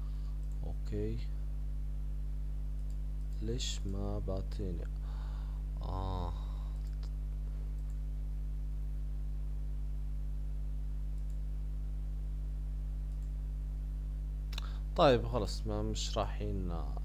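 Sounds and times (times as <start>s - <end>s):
low hum with overtones: 0.0s - 17.0s
computer mouse clicks: 0.4s - 0.6s, 2.7s - 4.0s, 6.8s - 8.0s, 11.1s - 11.4s, 13.1s - 13.4s.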